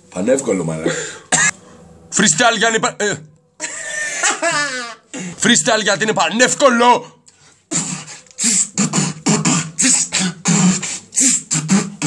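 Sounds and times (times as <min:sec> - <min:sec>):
man beatboxing: 0:07.7 - 0:12.0.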